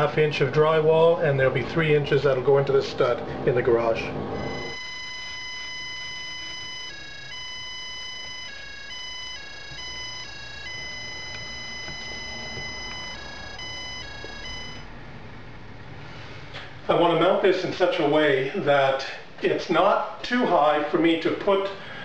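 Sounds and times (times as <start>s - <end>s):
stud finder beeping in two pitches: 4.4s - 14.9s.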